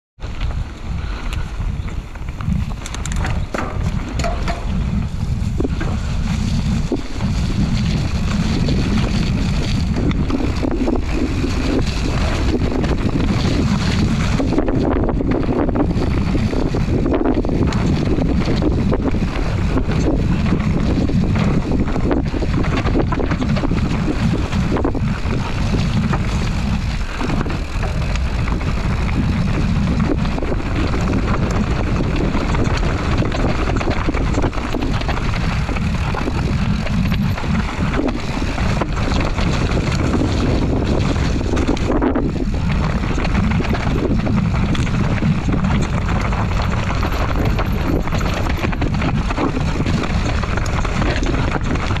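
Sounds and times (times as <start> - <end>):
bike knocking and rattling: 0.2 - 52.0
tyres rumbling on dirt: 0.2 - 52.0
wind buffeting microphone: 0.2 - 52.0.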